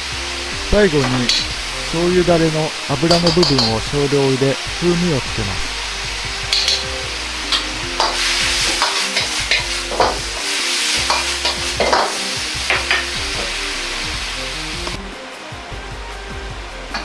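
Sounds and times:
steady low hum: 0.0s - 8.8s
food sizzling in a wok: 0.0s - 17.0s
metal ladle clacking against wok: 3.3s - 3.8s, 6.5s - 6.9s, 8.8s - 10.2s.

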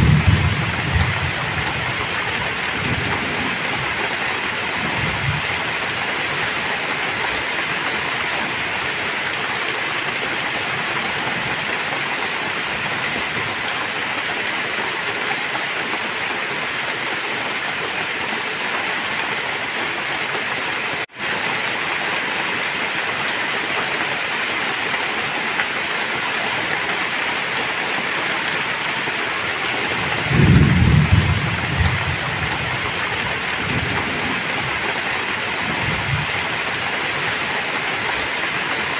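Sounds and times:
thunder rumbling: 0.0s - 4.0s, 29.8s - 34.9s
heavy rain pouring: 0.0s - 38.9s.

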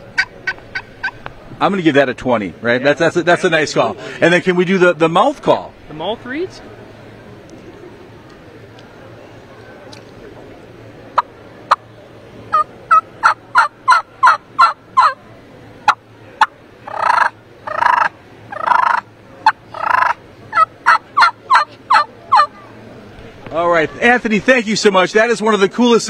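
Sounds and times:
turkey call yelps: 0.0s - 1.2s, 12.5s - 15.2s, 15.9s - 22.6s
turkey call clucks: 0.0s - 1.3s, 12.5s - 15.2s, 15.9s - 22.6s.

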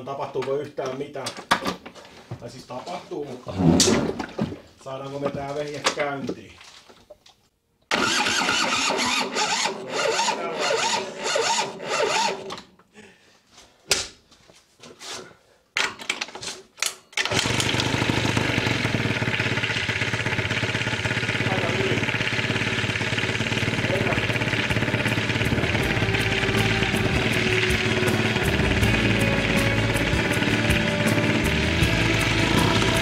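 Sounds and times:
scooter engine cranking: 7.9s - 12.6s, 17.2s - 33.0s
two-stroke engine running: 17.3s - 33.0s.

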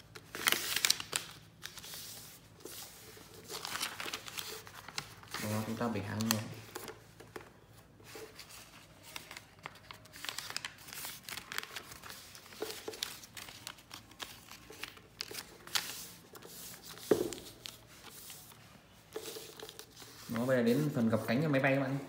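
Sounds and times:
paper rustling and crinkling: 0.0s - 21.7s.

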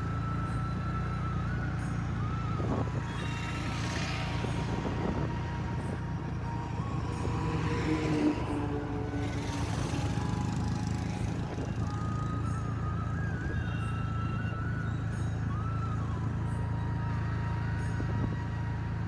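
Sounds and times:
scooter engine running: 0.0s - 19.0s
wind on microphone: 2.2s - 12.5s.

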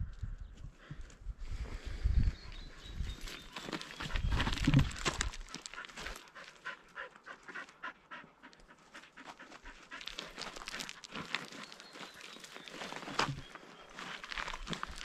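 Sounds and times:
footsteps on gravel: 3.0s - 6.6s, 9.2s - 15.0s
dog panting: 5.7s - 12.2s.

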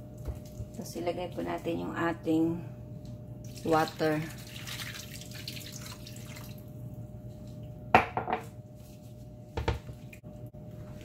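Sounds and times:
water pouring into pan: 3.5s - 6.6s.

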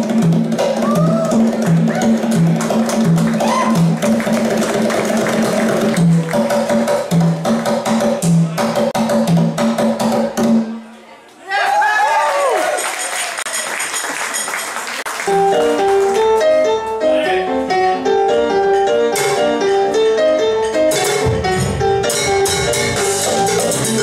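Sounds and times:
congas and hand percussion: 0.0s - 10.8s, 12.7s - 17.0s, 20.6s - 24.0s
keyboard riff: 15.2s - 24.0s
bass line: 21.2s - 24.0s.

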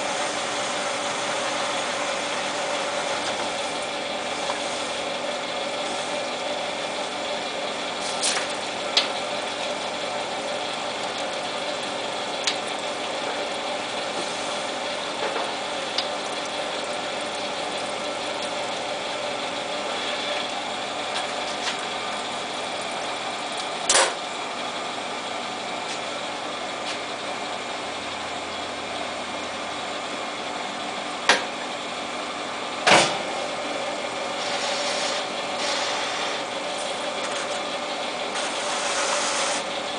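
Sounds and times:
lathe running: 0.0s - 39.9s.

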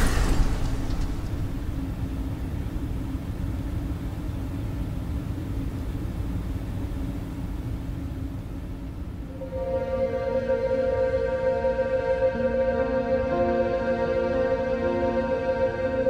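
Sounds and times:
low rumble with faint hum: 0.0s - 12.0s.

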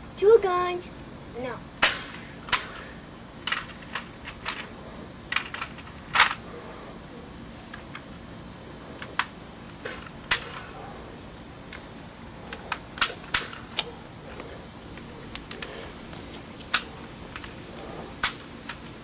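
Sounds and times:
toy pistols firing: 1.8s - 2.9s, 12.6s - 13.9s.

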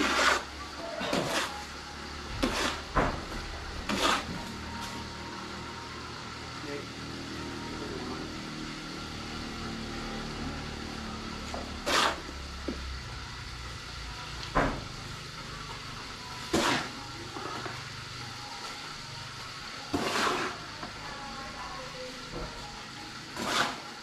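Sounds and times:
harsh scraping of cement mix: 0.0s - 1.7s, 2.3s - 4.6s, 11.4s - 12.4s, 16.5s - 17.8s, 19.9s - 20.7s, 23.4s - 24.0s
steady low hum: 0.0s - 23.2s.

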